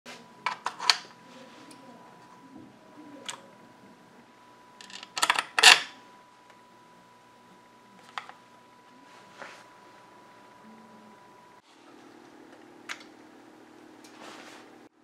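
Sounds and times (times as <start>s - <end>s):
faint steady high tone: 10.5s - 11.6s.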